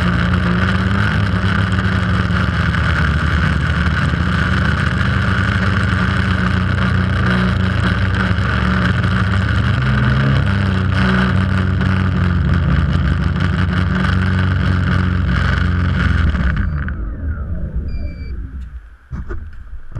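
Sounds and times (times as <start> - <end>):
quadcopter propellers buzzing: 14.6 - 18.9.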